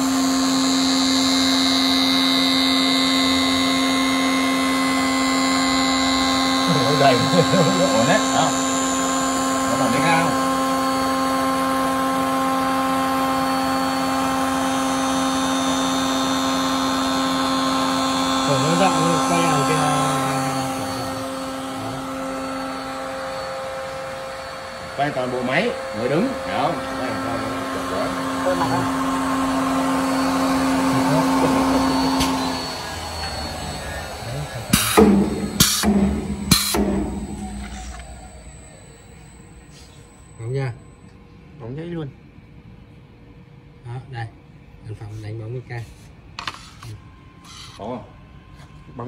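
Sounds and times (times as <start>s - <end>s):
polishing machine humming and whining: 0.0s - 41.2s
pneumatic air hisses: 31.2s - 38.4s, 39.6s - 40.1s.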